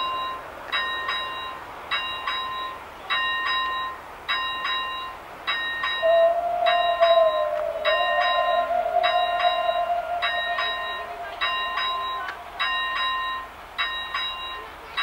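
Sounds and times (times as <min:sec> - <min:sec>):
level-crossing warning bell: 0:00.0 - 0:15.0
steam whistle blast: 0:06.0 - 0:13.5.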